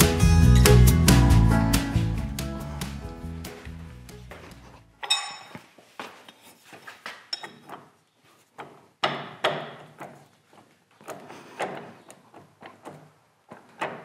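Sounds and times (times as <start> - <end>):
metal clinks and knocks: 5.0 - 5.6, 7.3 - 7.8.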